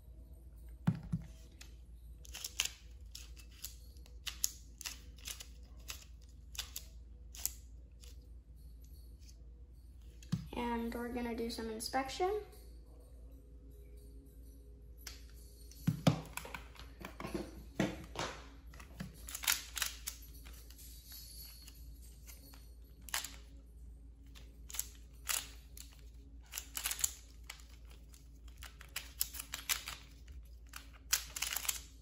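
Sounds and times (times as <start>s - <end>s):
plastic puzzle pieces clacking: 2.2s - 8.2s, 18.7s - 20.8s, 22.2s - 23.6s, 24.2s - 32.0s.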